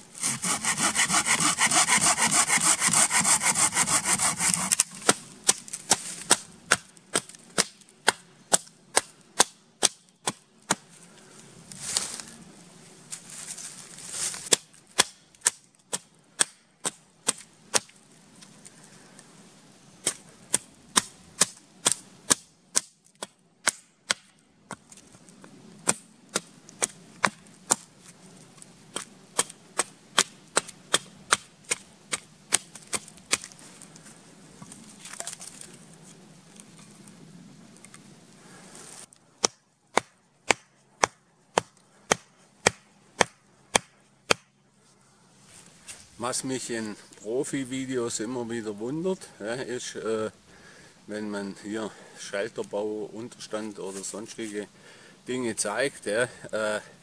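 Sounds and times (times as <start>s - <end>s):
hatchet chopping wood: 0.2s - 10.8s, 14.5s - 17.9s, 20.0s - 24.8s, 25.8s - 27.9s, 28.9s - 33.5s, 39.4s - 44.5s.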